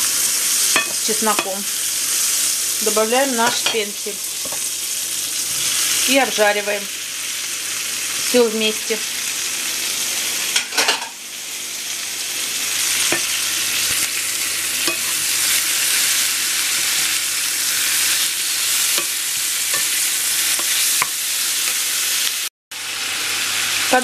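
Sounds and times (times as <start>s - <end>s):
vegetables sizzling in pan: 0.0s - 24.0s.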